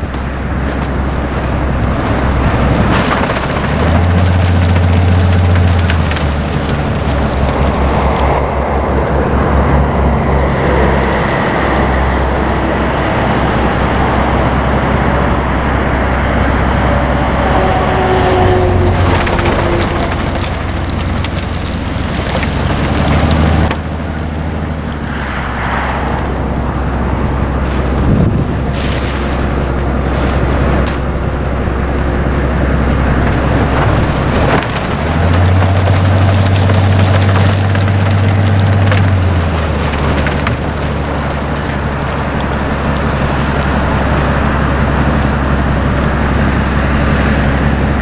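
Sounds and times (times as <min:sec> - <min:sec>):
heavy engine rumble: 0:00.0 - 0:48.0.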